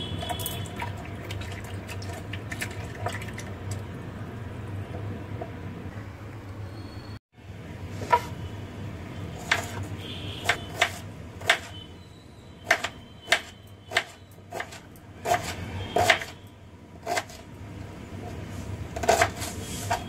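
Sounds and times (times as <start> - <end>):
knife slicing onion on board: 9.4 - 11.7, 12.7 - 16.4, 17.0 - 17.4, 18.2 - 20.0.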